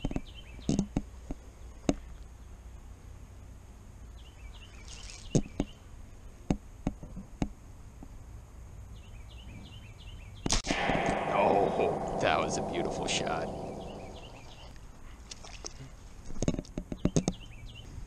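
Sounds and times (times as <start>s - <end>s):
low outdoor background: 0.0s - 18.0s
sudden loud burst: 10.5s - 14.6s.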